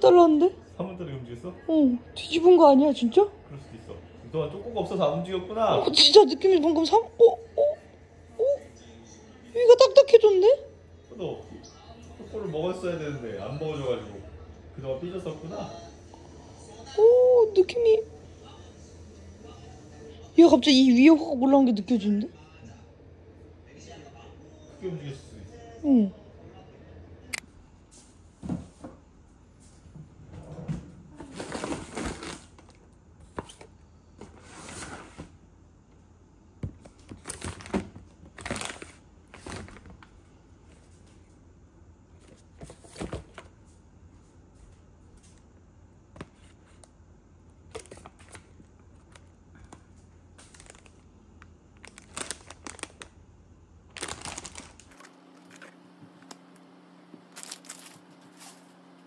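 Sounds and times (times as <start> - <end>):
steady low hum: 35.2 - 59.0
plastic packaging crinkling: 37.1 - 40.1, 50.4 - 51.1, 51.8 - 53.2, 53.9 - 55.8, 57.3 - 58.8.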